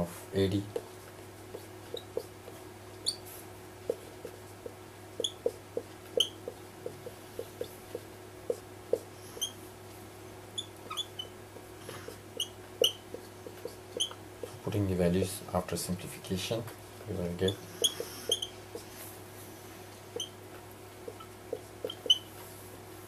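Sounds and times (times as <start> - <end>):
faint steady hum: 0.0 - 23.0
whiteboard marker squeaking: 1.5 - 2.3, 3.0 - 3.2, 3.9 - 9.6, 10.6 - 11.4, 12.0 - 14.6, 17.4 - 18.9, 20.1 - 20.4, 21.0 - 22.3.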